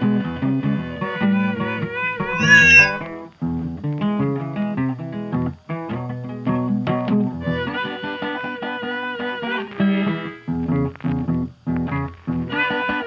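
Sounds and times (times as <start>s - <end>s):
cat meowing: 2.3s - 3.0s.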